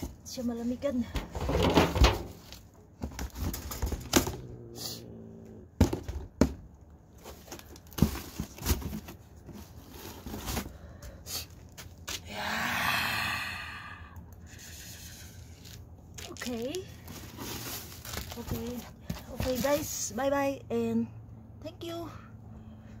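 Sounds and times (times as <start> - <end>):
cardboard crinkling: 15.4 - 20.1.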